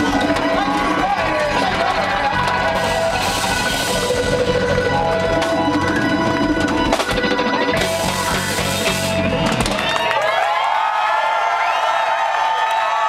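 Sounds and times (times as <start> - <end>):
crowd cheering and whooping: 0.0 - 6.8, 9.2 - 13.0
live funk band playing: 0.0 - 10.1.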